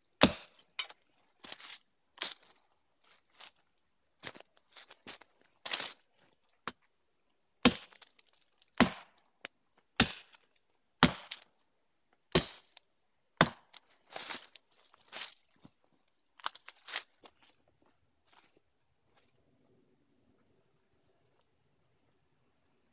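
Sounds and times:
hatchet chopping log: 0.2s - 0.9s, 7.6s - 8.0s, 8.8s - 9.2s, 10.0s - 10.3s, 11.0s - 11.5s, 12.3s - 12.7s, 13.4s - 13.8s.

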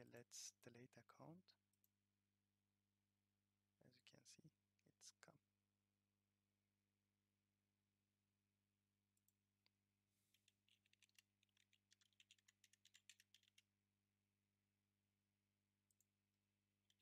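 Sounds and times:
computer keyboard typing: 10.3s - 13.7s.

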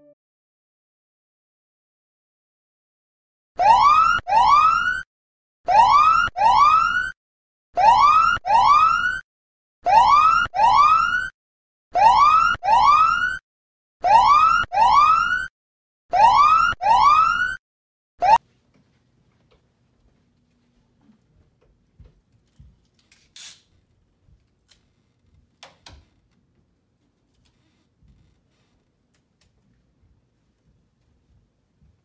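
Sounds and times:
electronic whoop alarm: 3.6s - 5.0s, 5.7s - 7.2s, 7.8s - 9.2s, 9.8s - 11.3s, 12.0s - 13.4s, 14.0s - 15.5s, 16.1s - 17.6s, 18.2s - 18.4s.

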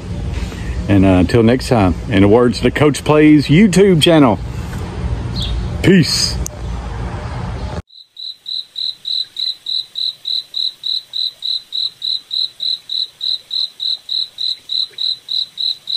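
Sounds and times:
cricket chirping: 7.9s - 15.9s.

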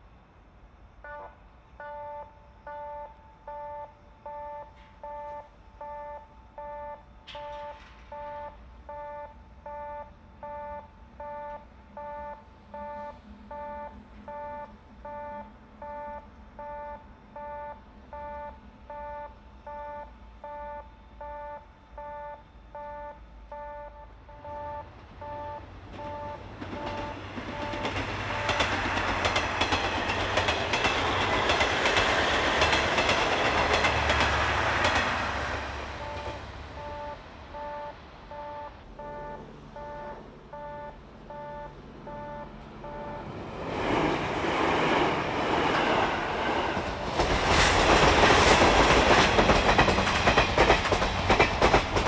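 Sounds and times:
level crossing alarm ringing: 1.0s - 28.8s, 36.0s - 43.3s.

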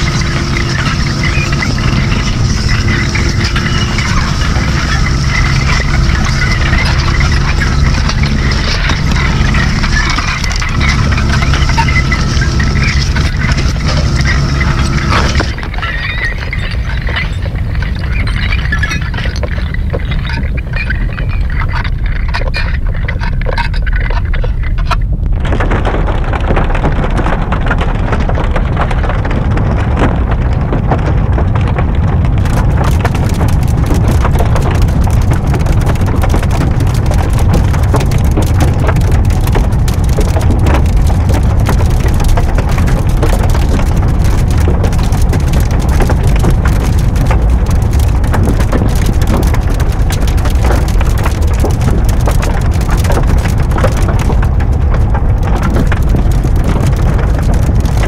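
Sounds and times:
steady tones: 0.0s - 26.4s
rumbling crackling noise: 0.0s - 58.0s
thick steady roar: 0.0s - 58.0s.

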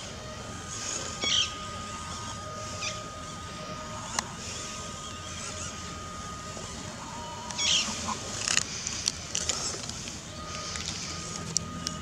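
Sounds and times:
toy car motor whining: 0.0s - 12.0s
clicks of tyres and stones: 7.4s - 12.0s.

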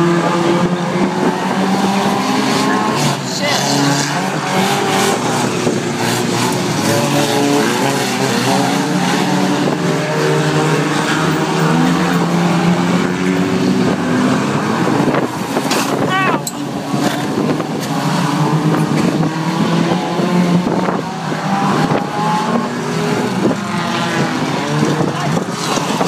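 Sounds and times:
racing car engines revving: 0.0s - 26.0s.

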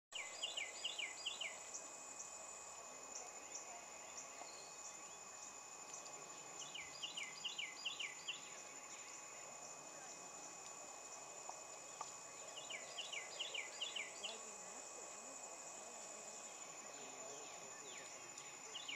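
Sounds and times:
high insect drone: 0.2s - 18.9s.

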